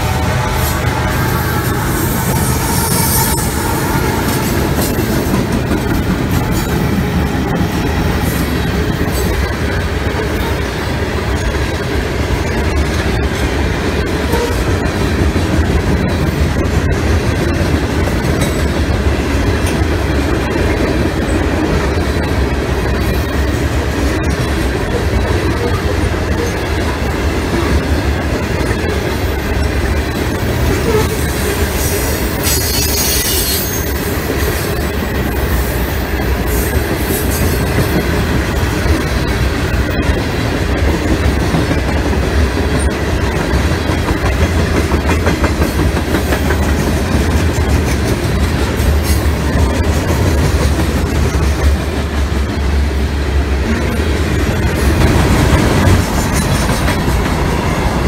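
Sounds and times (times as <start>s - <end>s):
train wheels rumbling on rails: 0.0s - 58.0s.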